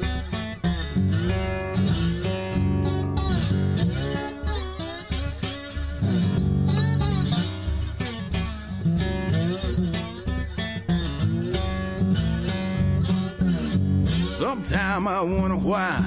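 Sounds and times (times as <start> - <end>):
electric guitar bending notes: 0.0 - 16.0
steady bass line: 6.0 - 10.0, 10.9 - 16.0.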